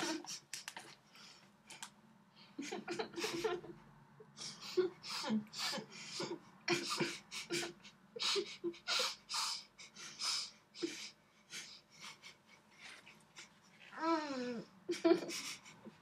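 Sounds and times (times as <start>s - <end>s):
muffled laughs: 2.6s - 9.2s
muffled moaning voice: 13.9s - 14.7s.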